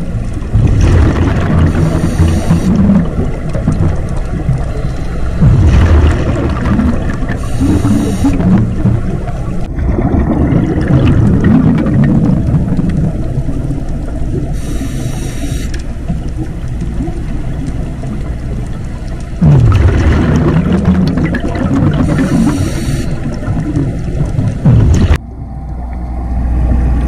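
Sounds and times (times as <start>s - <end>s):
low bubbling underwater: 0.0s - 14.6s, 16.0s - 27.0s
regulator hiss on inhale: 1.8s - 2.8s, 7.4s - 8.4s, 14.6s - 15.8s, 22.0s - 23.4s.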